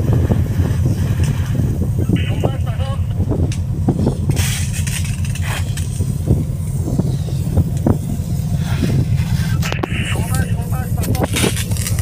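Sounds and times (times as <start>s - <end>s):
hose spraying water on deck: 0.0s - 2.0s, 3.8s - 9.7s
wind buffeting microphone: 0.0s - 12.0s.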